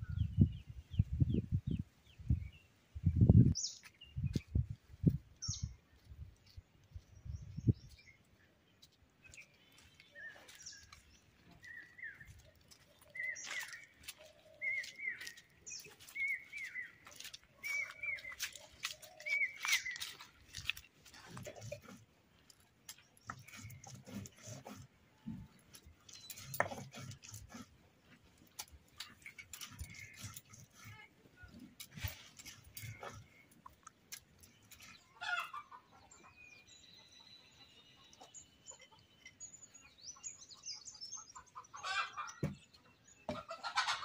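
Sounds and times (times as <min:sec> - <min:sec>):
stone grinding on stone slab: 0:23.2 - 0:24.9, 0:25.5 - 0:27.8.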